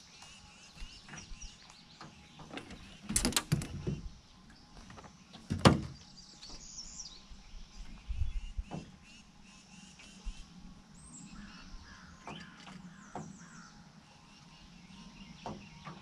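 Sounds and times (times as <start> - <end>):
faint birds chirping: 0.0 - 16.0
gear knocking in a boat: 1.1 - 4.1, 4.8 - 6.7.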